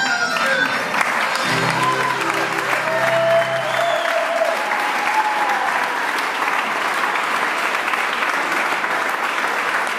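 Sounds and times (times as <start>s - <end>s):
music: 0.0s - 4.2s
audience applauding: 0.0s - 9.9s.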